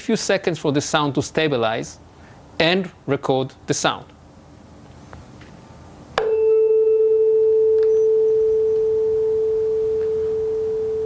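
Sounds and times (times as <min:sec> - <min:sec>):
tuning fork ringing: 0:06.2 - 0:11.0.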